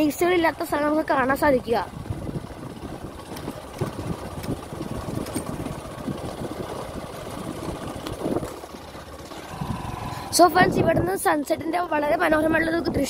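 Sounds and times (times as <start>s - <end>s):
motor scooter running: 0.0s - 13.0s
wind rumbling on microphone: 1.8s - 8.7s, 9.4s - 13.0s.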